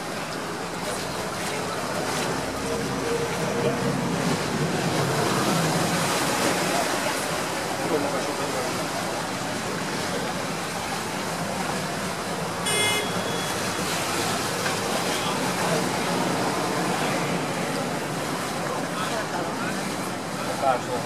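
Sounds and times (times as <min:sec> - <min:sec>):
boat engine noise: 0:00.0 - 0:21.0
water rushing: 0:00.0 - 0:21.0
short high-pitched beep: 0:12.7 - 0:13.6.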